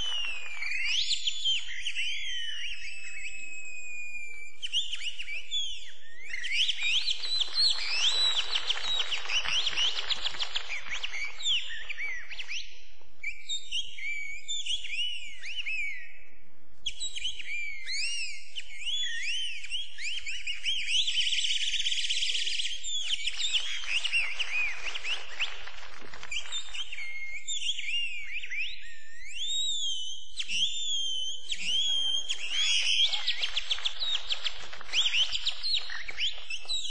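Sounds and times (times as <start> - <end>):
bird-like whistled chirps: 0.0 - 36.9.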